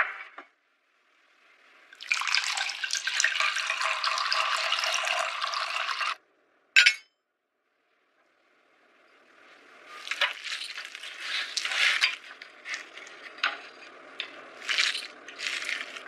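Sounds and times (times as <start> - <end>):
wine pouring into a glass: 2.0 - 6.2.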